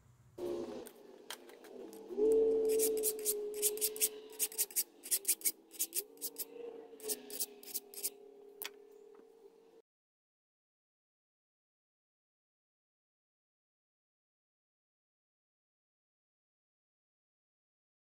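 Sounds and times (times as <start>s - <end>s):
file scraping metal: 1.9s - 8.2s.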